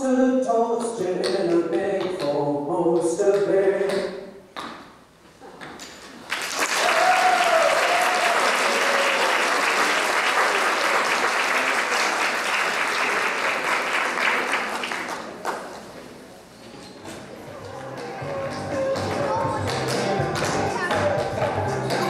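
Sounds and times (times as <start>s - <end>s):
audience applauding: 6.2s - 15.7s.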